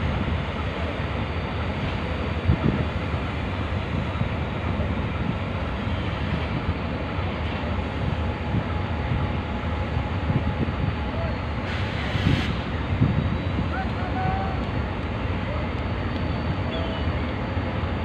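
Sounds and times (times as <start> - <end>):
diesel locomotive idling: 0.0 - 18.0
wind buffeting microphone: 2.1 - 14.0.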